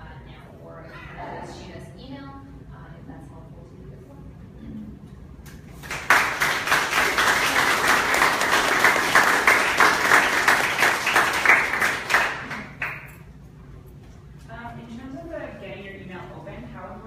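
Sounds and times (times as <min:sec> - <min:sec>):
audience clapping: 0:05.7 - 0:13.2.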